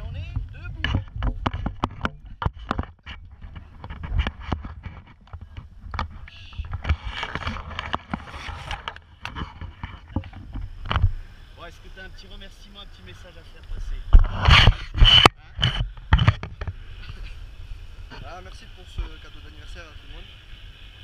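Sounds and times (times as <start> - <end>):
wind rumbling on microphone: 0.0 - 21.0
harness knocks and clicks: 0.2 - 11.1.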